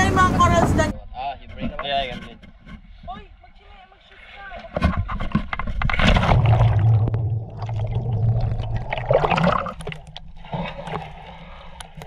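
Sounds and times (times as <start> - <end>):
seawater splashing and gurgling: 3.9 - 12.0.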